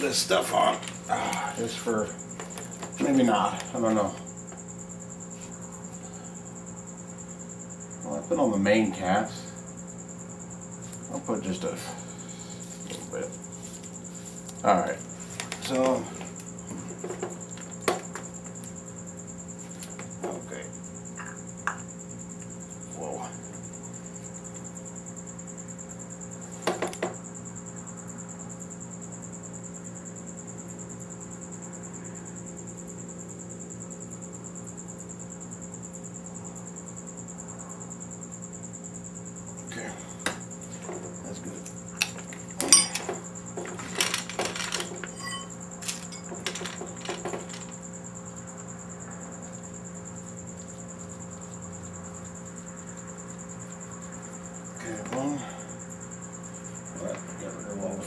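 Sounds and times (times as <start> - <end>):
steady low hum: 0.0 - 58.0
metal engine parts clinking: 42.6 - 47.7.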